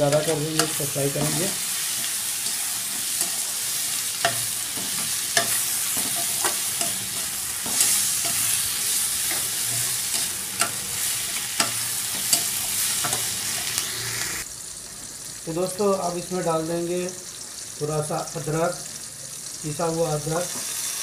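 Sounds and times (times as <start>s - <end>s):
vegetables sizzling in hot oil: 0.0s - 21.0s
metal spatula clinking on pan: 4.2s - 8.5s, 9.3s - 13.3s.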